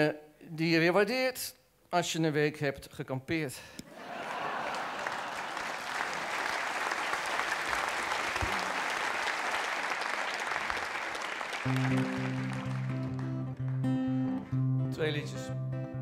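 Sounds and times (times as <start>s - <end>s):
audience applauding: 3.9s - 14.8s
acoustic guitar playing: 11.6s - 16.0s.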